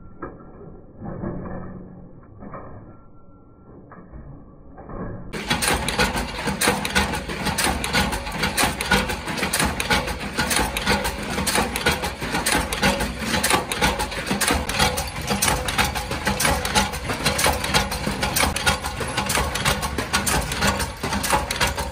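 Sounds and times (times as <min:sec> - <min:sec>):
forming press metallic clatter: 0:05.3 - 0:21.9.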